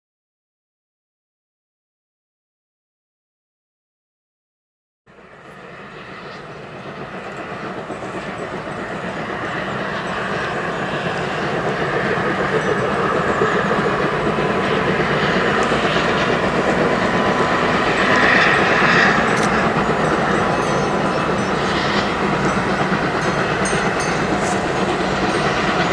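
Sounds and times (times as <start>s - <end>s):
steam locomotives chuffing: 5.2s - 25.9s.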